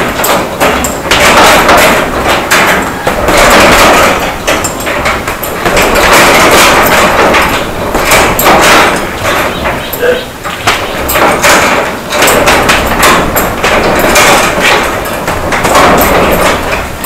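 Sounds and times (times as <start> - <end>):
boxing gloves punching heavy bag: 0.0 - 17.0.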